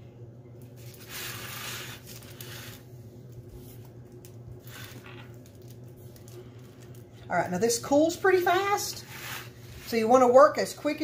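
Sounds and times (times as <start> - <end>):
steady low hum: 0.0 - 11.0
spatula scraping sticky caramel: 8.5 - 10.4.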